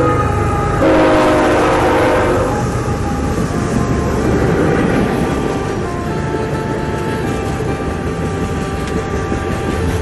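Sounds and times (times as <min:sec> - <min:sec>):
locomotive horn blasts: 0:00.0 - 0:02.9, 0:05.8 - 0:10.0
freight train rumbling: 0:00.0 - 0:10.0.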